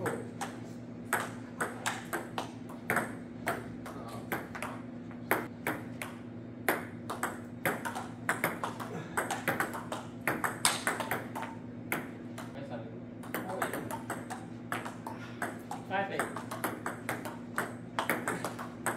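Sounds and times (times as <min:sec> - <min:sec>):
table tennis ball clicking: 0:06.0 - 0:12.6.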